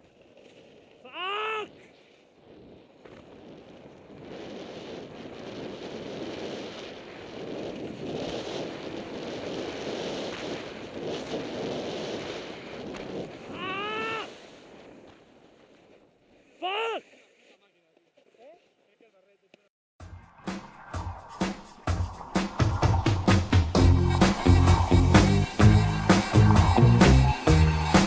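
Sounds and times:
snowboard carving on snow: 0:00.0 - 0:19.2, 0:20.6 - 0:28.0
person shouting: 0:01.1 - 0:01.7, 0:13.5 - 0:14.3, 0:16.6 - 0:17.0
wind on microphone: 0:01.4 - 0:16.5, 0:20.3 - 0:27.1.

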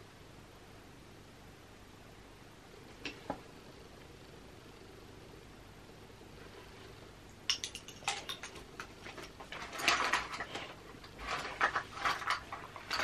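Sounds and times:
makeup products clicking and rustling: 0:07.5 - 0:13.0.

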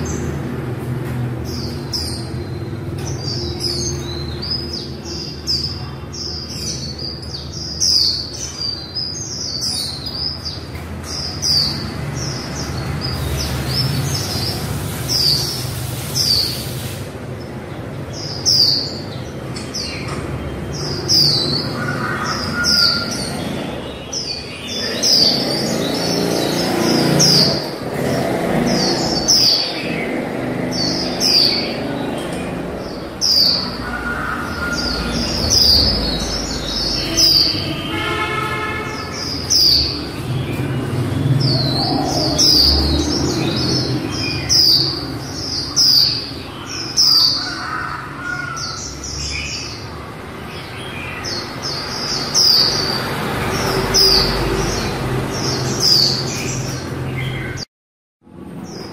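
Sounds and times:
bird chirping: 0:00.0 - 0:57.7.

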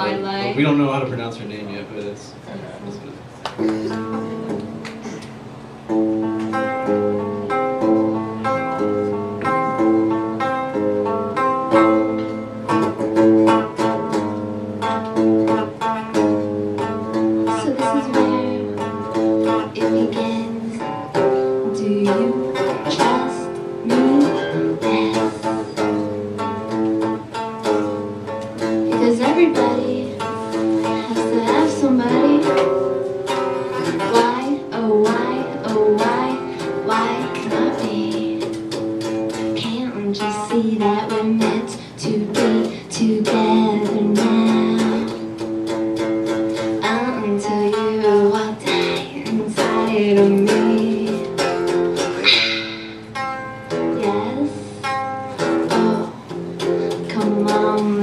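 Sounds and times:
electric guitar picking: 0:01.9 - 0:58.0
person singing: 0:17.4 - 0:25.9, 0:28.8 - 0:32.8, 0:33.7 - 0:38.8, 0:39.4 - 0:45.3, 0:46.6 - 0:56.3, 0:56.9 - 0:58.0.

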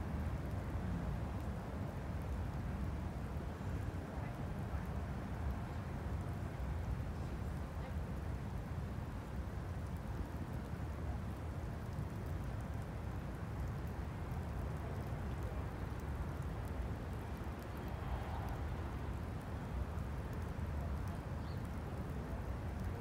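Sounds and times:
wind: 0:00.0 - 0:23.0
faint scattered ticks: 0:09.2 - 0:23.0.

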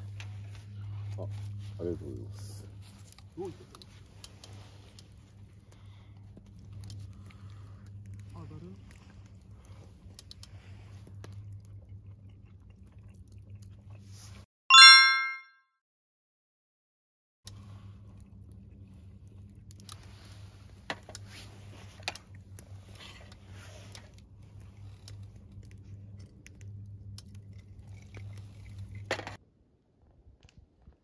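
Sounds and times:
chewing with small clicks: 0:02.8 - 0:14.4, 0:17.5 - 0:29.1.

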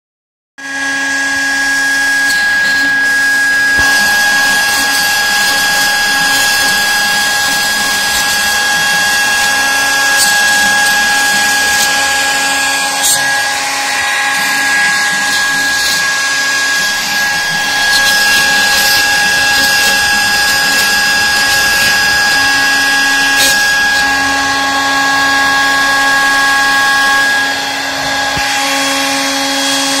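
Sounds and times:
router spindle whining: 0:00.6 - 0:30.0
hiss of cutting: 0:03.8 - 0:13.9.

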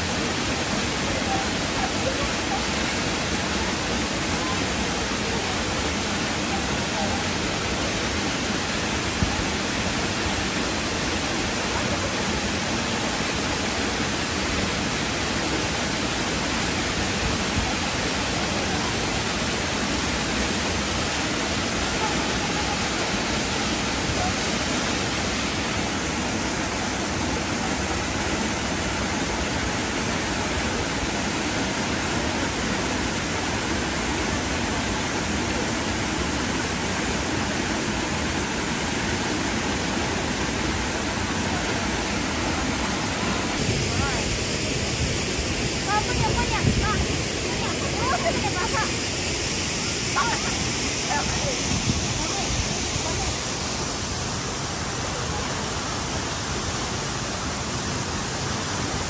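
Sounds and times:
waterfall rushing: 0:00.0 - 0:59.0.

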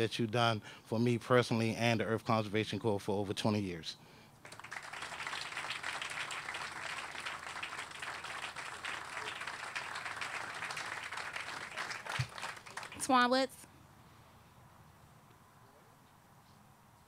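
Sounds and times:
audience applauding: 0:04.4 - 0:13.2.

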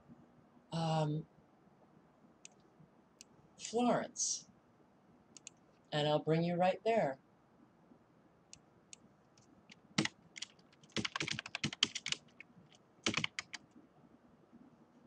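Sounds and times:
computer keyboard typing: 0:09.7 - 0:13.7.

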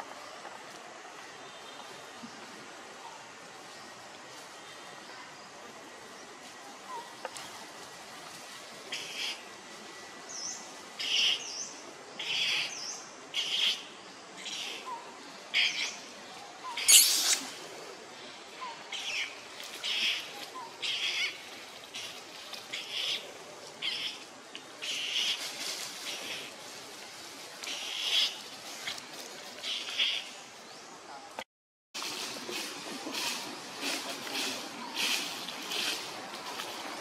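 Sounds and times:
high-pitched animal calls: 0:16.7 - 0:17.6
quick chirps: 0:16.8 - 0:17.6.

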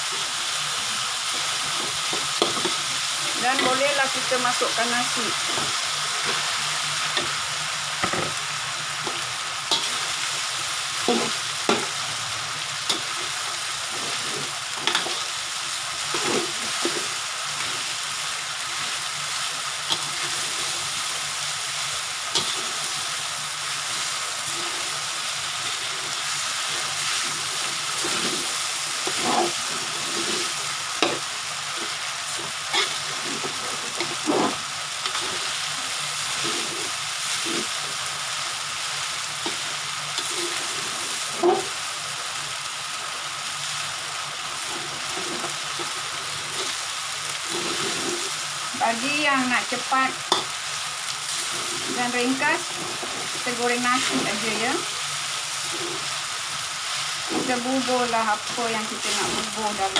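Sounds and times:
rice sizzling in a wok: 0:00.0 - 0:59.9
metal spatula scraping a wok: 0:08.9 - 0:10.4, 0:11.0 - 0:12.0, 0:12.8 - 0:15.3, 0:16.0 - 0:17.9, 0:18.8 - 0:21.2, 0:22.2 - 0:23.1, 0:23.9 - 0:38.0, 0:39.4 - 0:41.8, 0:44.6 - 0:46.8, 0:47.4 - 0:50.6, 0:51.2 - 0:54.9, 0:55.5 - 0:56.3, 0:57.0 - 0:59.9.

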